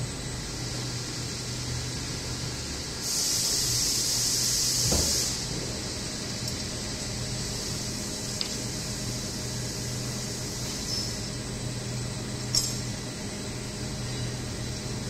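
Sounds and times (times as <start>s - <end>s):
machine humming and hissing: 0.0s - 15.0s.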